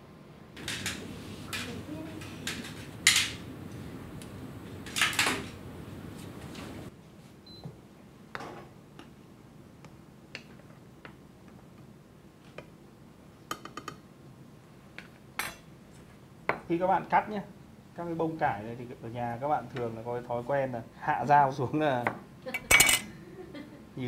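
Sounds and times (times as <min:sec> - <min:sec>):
background hum: 0:00.0 - 0:21.6, 0:22.2 - 0:24.0
utensils and dishes clinking: 0:22.5 - 0:23.1.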